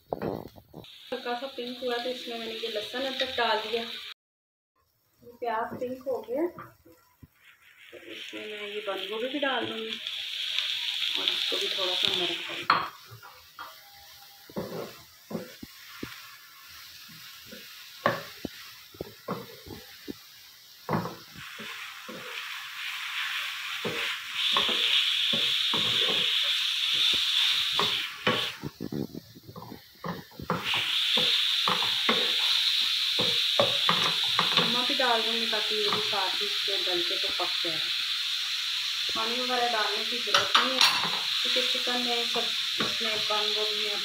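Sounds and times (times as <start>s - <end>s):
vegetables sizzling in oil: 0.0s - 4.2s, 4.8s - 44.0s
wooden spatula taps and scrapes: 14.4s - 16.2s, 17.5s - 20.2s, 27.0s - 32.4s, 33.2s - 34.9s.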